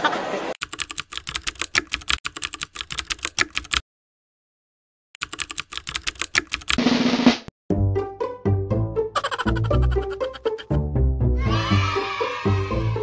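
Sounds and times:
computer keyboard typing: 0.6 - 3.8, 5.2 - 6.8.

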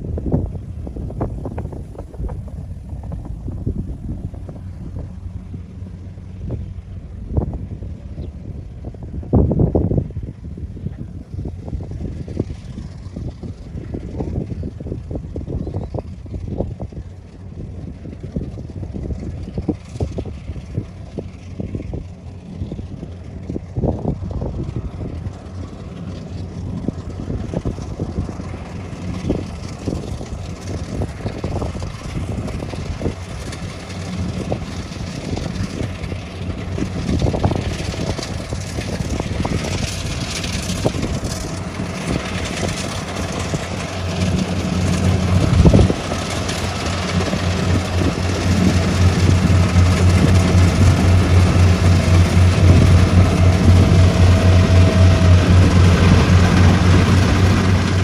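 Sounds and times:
combine harvester engine hum: 0.0 - 58.0
machinery rattle: 17.9 - 58.0.

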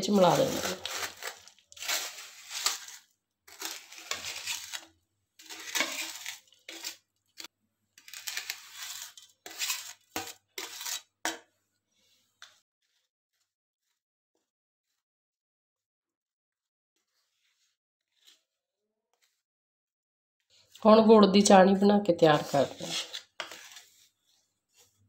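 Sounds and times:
wooden spoon scraping steel plate: 0.0 - 7.0, 8.0 - 11.4, 22.2 - 25.0.

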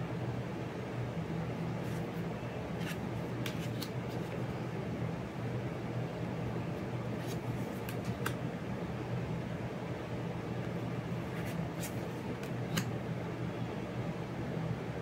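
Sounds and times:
low fan hum: 0.0 - 15.0
paper cards clicking and snapping: 2.8 - 4.4, 7.2 - 8.4, 11.4 - 12.9.

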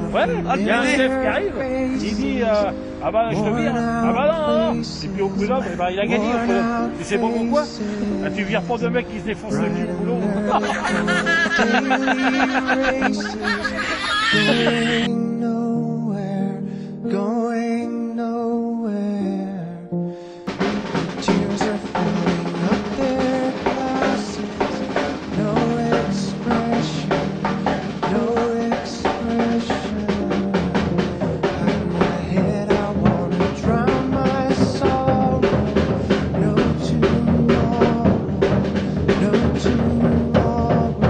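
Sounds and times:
held pitched notes: 0.0 - 15.1
band music with drum beat: 3.4 - 5.4, 6.1 - 7.6, 9.5 - 15.1, 20.5 - 41.0.

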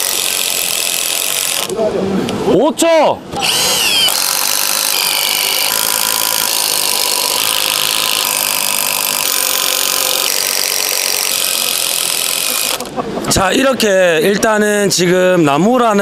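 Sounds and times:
impact drivers hammering screws: 0.0 - 1.7, 3.4 - 12.9.

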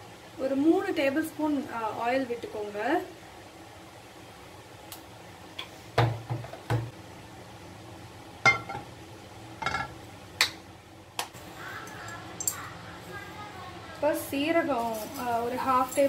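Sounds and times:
frying pan clanking on hob: 8.4 - 8.9, 9.6 - 10.0.

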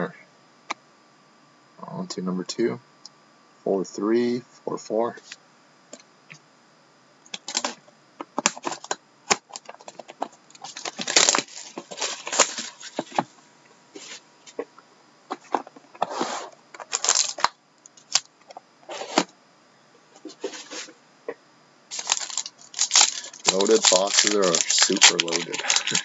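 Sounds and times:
plastic wrap and cardboard crinkling: 7.4 - 7.8, 8.4 - 13.3, 15.4 - 18.2, 21.9 - 26.0.

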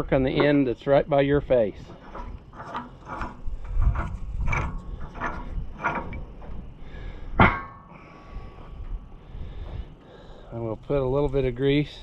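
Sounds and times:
wrench metallic scrape: 1.8 - 7.8
sharp metal clank: 7.4 - 8.0.

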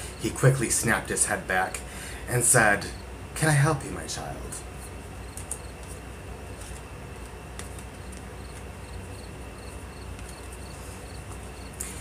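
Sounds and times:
low room hum: 0.0 - 12.0
cricket chirping: 8.0 - 11.8.

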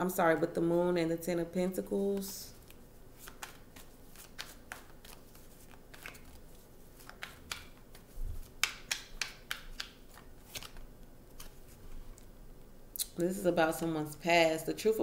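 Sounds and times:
cards being shuffled: 2.2 - 12.3.

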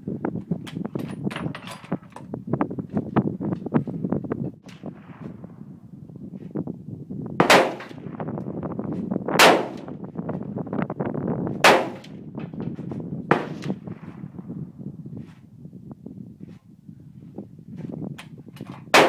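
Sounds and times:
wind rumble on microphone: 0.0 - 19.0
rifle shots with echo: 7.4 - 8.2, 9.4 - 9.9, 11.6 - 12.2, 13.3 - 14.2.

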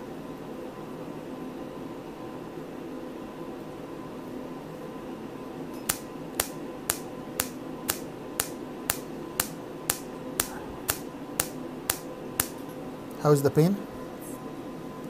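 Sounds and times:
steady hum: 2.8 - 15.0
laser pulses snapping: 5.9 - 12.6.

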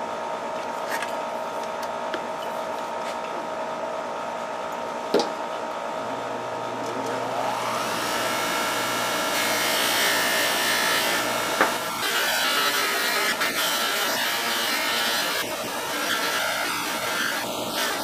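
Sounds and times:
grinder motor whine: 6.6 - 18.0.

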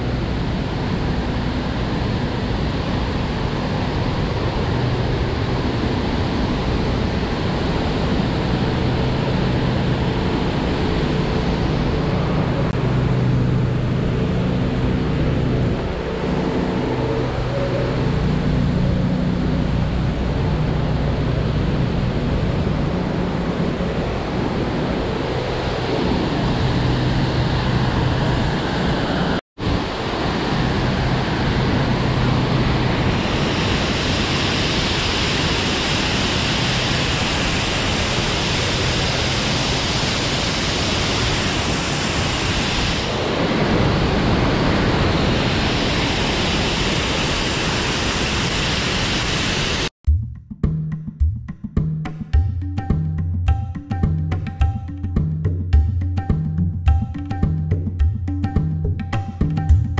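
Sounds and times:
low hum: 0.0 - 35.7
waterfall and creek rushing: 29.6 - 49.9.

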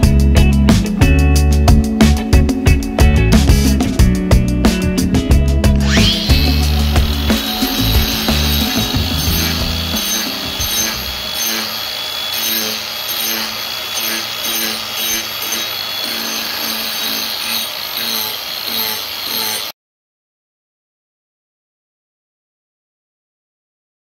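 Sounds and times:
background music with beat: 0.0 - 11.2
angle grinder sanding wood: 5.8 - 19.7.

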